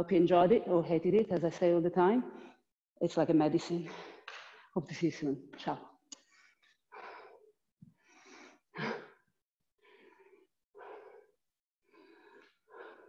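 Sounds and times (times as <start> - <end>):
woman breathing heavily: 3.8 - 4.8, 6.2 - 13.0.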